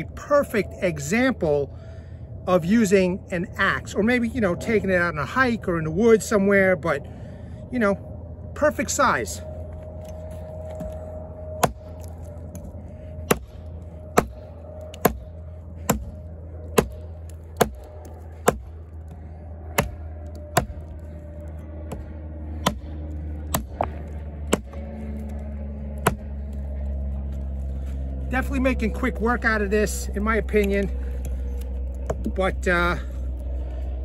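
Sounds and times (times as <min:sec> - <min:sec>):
axe chopping into log: 0:11.6 - 0:12.1, 0:13.2 - 0:13.5, 0:14.2 - 0:15.2, 0:15.8 - 0:16.1, 0:16.8 - 0:17.0, 0:17.6 - 0:18.7, 0:19.7 - 0:20.8, 0:22.6 - 0:24.8, 0:26.0 - 0:26.3.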